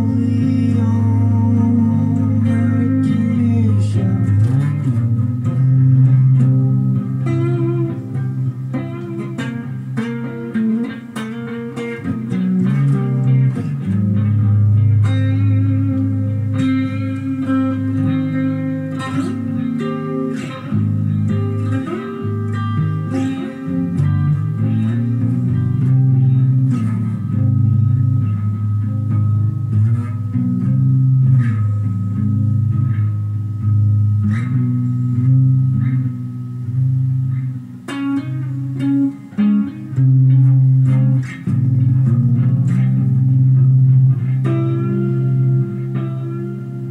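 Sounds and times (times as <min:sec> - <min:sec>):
electric guitar playing: 0:00.0 - 0:46.9.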